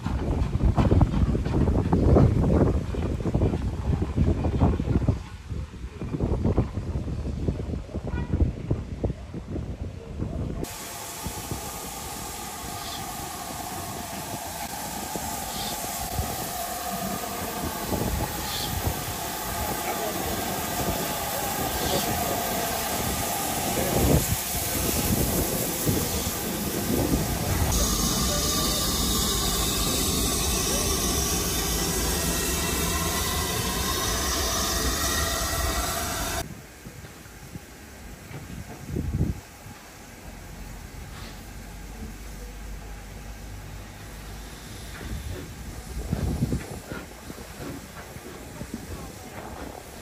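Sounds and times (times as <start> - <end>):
wheels rumbling on rails: 0.0 - 7.0
steam locomotive hissing: 10.6 - 50.0.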